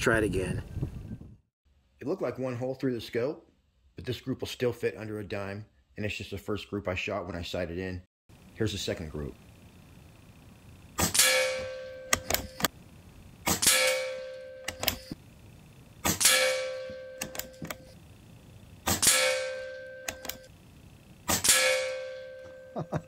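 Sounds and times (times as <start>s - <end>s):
air rifle shot cracking: 18.9s - 19.6s, 21.3s - 22.1s.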